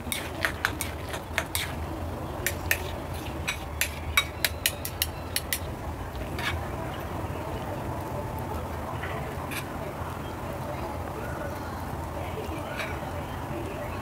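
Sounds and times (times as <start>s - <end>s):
chopsticks clicking against bowl: 2.5s - 5.7s.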